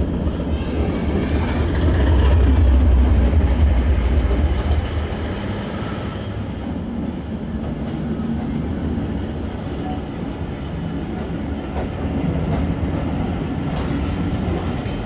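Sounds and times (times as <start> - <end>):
diesel train engine throbbing: 0.0 - 9.7.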